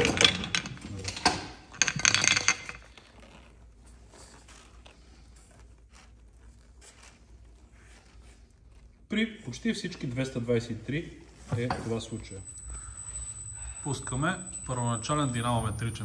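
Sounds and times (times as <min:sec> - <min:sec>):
metal parts clinking and knocking: 0:00.0 - 0:03.4.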